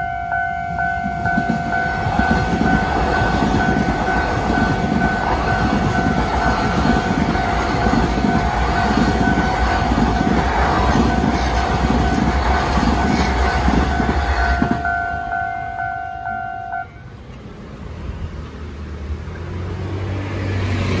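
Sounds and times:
crossing warning bell ringing: 0:00.0 - 0:17.2
train rumbling past: 0:00.0 - 0:21.0.

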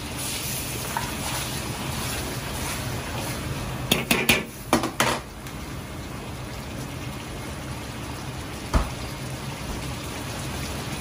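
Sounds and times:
thick sauce bubbling: 0:00.0 - 0:04.7.

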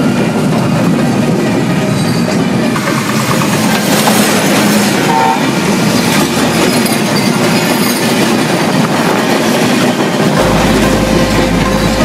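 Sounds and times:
train wheels rumbling on rails: 0:00.0 - 0:12.0
two-note tone: 0:10.4 - 0:12.0.

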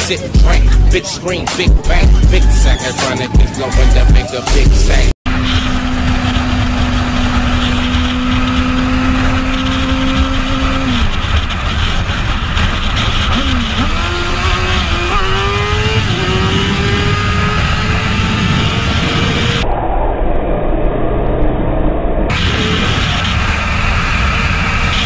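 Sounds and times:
motorcycle engine accelerating: 0:00.0 - 0:25.0
wind rush on microphone: 0:05.3 - 0:25.0.

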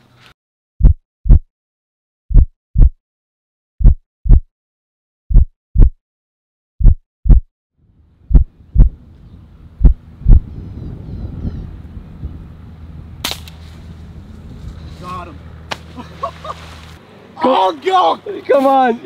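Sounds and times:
heartbeat thumps: 0:00.8 - 0:01.5, 0:02.3 - 0:03.0, 0:03.8 - 0:04.5, 0:05.3 - 0:06.0, 0:06.8 - 0:07.5, 0:08.3 - 0:09.0, 0:09.8 - 0:10.5
faint outdoor background noise: 0:07.8 - 0:19.0.

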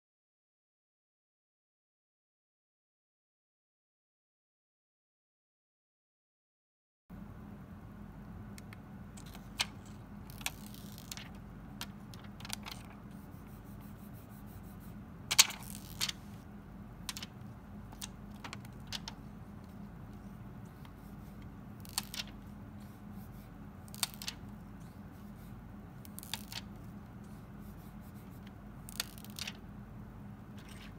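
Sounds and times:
steady low hum: 0:07.1 - 0:30.9.

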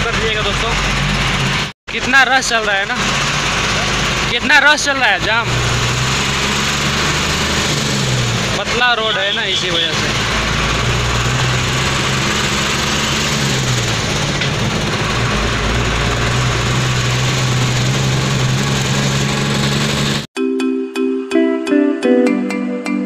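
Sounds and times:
diesel truck engine running: 0:00.0 - 0:20.3
music with bell-like notes: 0:20.4 - 0:23.0.

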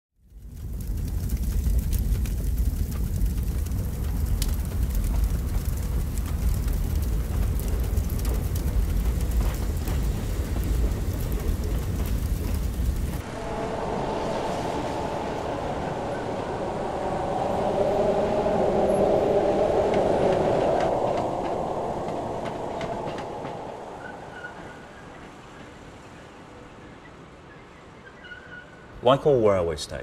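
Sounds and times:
crackling noise: 0:00.2 - 0:27.3
heavy low vehicle rumble: 0:00.9 - 0:25.3
steady higher hum: 0:13.2 - 0:25.2.

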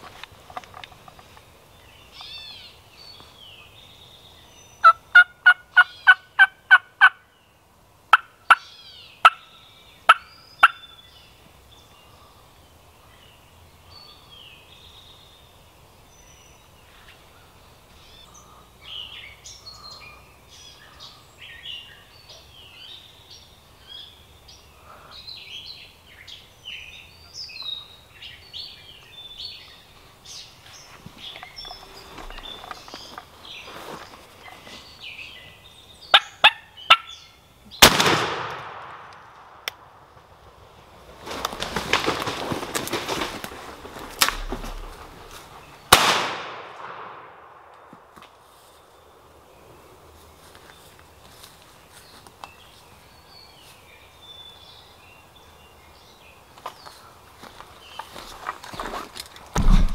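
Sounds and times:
small songbirds chirping: 0:00.0 - 0:37.9, 0:47.4 - 0:59.7.

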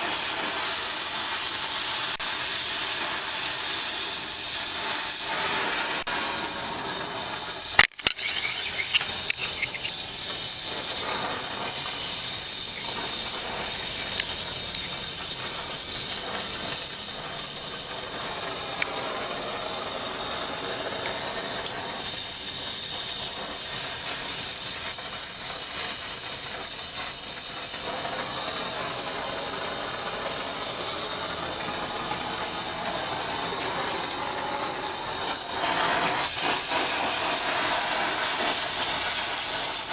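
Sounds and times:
gas torch flame hissing: 0:00.0 - 0:39.9
sharp clicks: 0:07.8 - 0:10.1.

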